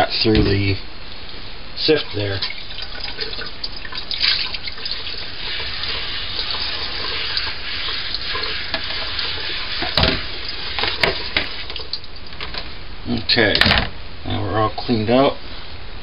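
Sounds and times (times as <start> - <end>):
faucet water splashing colander: 1.9 - 12.1.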